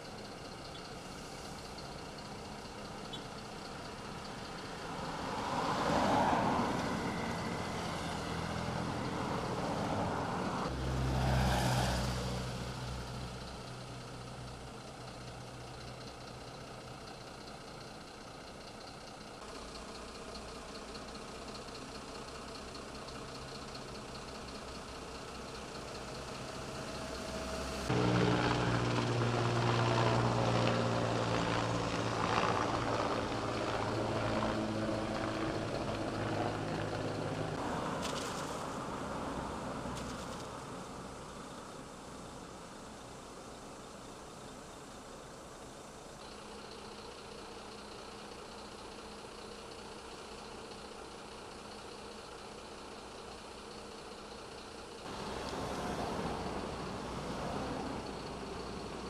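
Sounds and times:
truck engines idling: 0.0s - 6.0s, 12.4s - 59.0s
truck engine running close by: 0.0s - 59.0s
vehicle driving past: 5.1s - 13.3s, 26.3s - 40.6s, 55.1s - 59.0s.

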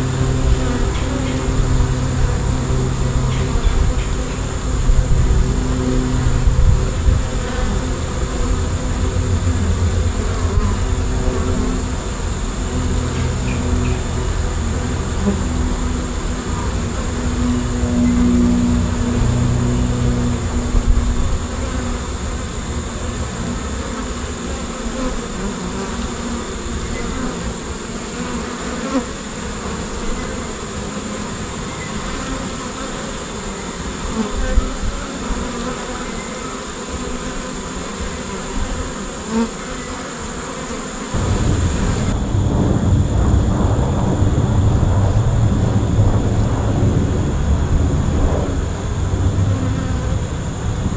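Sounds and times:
bees buzzing: 0.0s - 42.3s, 47.7s - 50.9s
low rumble: 1.6s - 21.5s, 41.2s - 50.9s.

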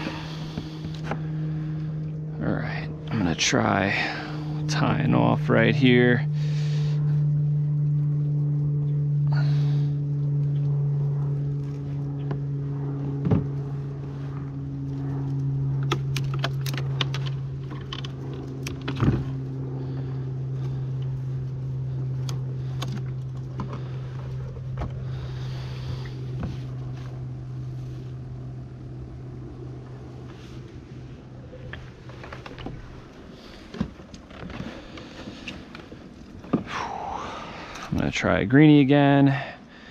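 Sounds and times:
electric air pump humming: 0.0s - 38.2s.

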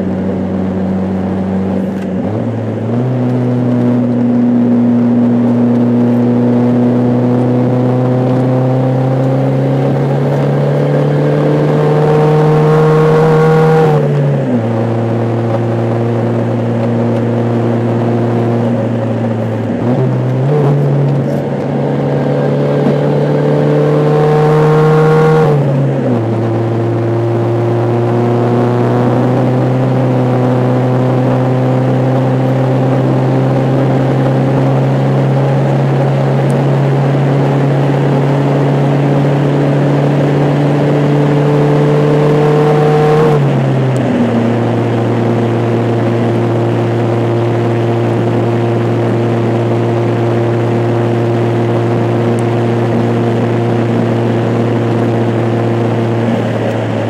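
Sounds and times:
car engine droning: 0.0s - 57.0s
road noise: 0.0s - 57.0s.

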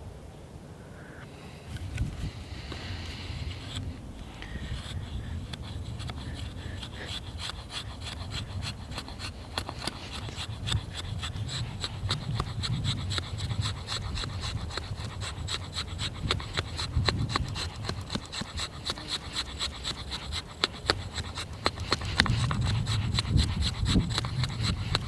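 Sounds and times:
steady low rumble: 0.0s - 17.5s
axe scraping wood: 1.7s - 25.0s.

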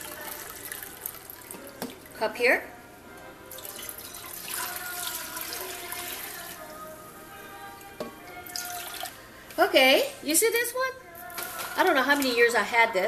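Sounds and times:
water pouring into saucepan: 0.0s - 2.1s, 3.5s - 6.6s, 8.4s - 9.2s.

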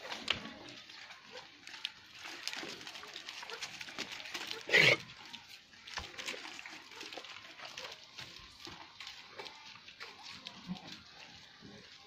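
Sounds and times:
scuffs and knocks of herd moving: 0.0s - 12.0s
goat harsh call: 4.6s - 5.1s.

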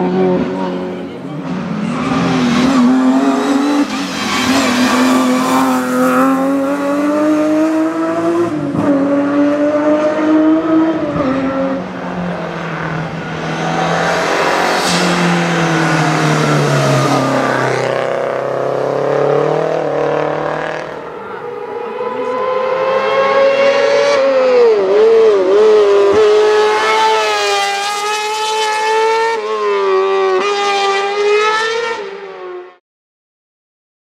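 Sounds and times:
rally car engines accelerating: 0.0s - 32.7s.

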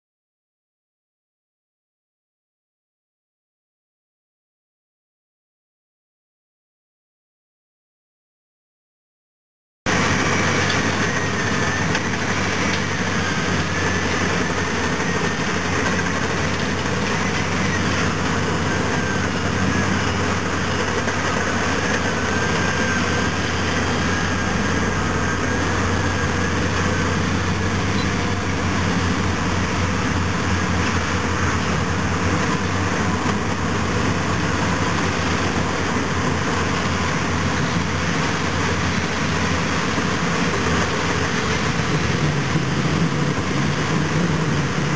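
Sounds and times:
diesel engines under load: 9.9s - 44.9s
faint high whine: 9.9s - 44.9s.

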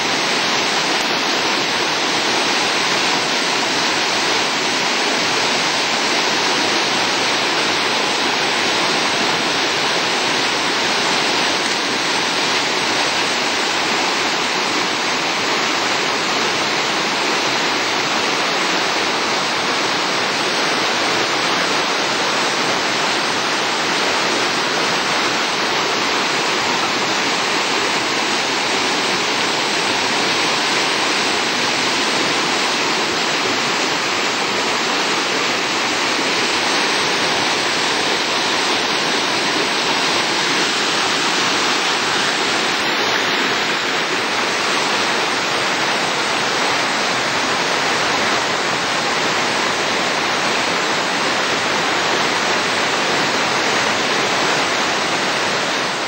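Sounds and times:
whitewater roaring in a stream: 0.0s - 56.0s.

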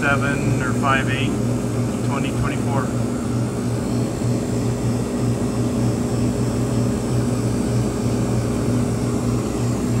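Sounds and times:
ice machine humming: 0.0s - 10.0s.

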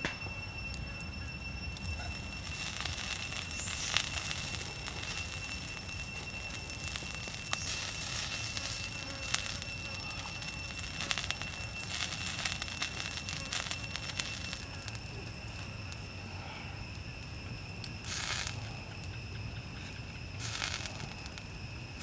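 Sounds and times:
campfire crackling: 0.0s - 22.0s
fire hissing: 0.0s - 22.0s
sharp fire pops: 1.8s - 15.9s, 17.8s - 18.7s, 20.4s - 21.4s.

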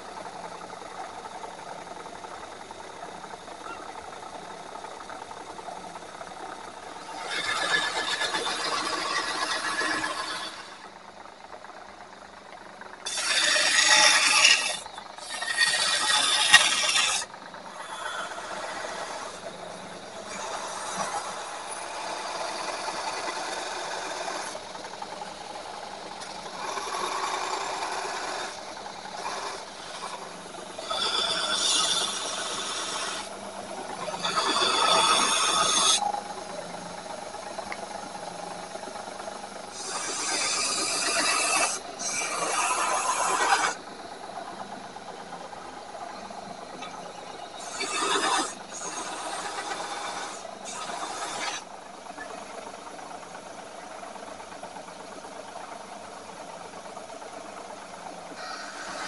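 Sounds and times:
rasping scrape of metal: 7.1s - 10.8s, 13.1s - 17.3s, 30.8s - 33.3s, 34.0s - 36.0s, 39.8s - 43.8s, 47.6s - 51.6s.

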